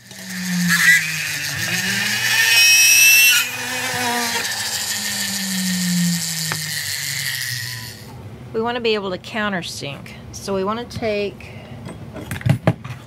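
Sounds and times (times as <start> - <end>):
rotary drill boring metal: 0.0 - 8.2.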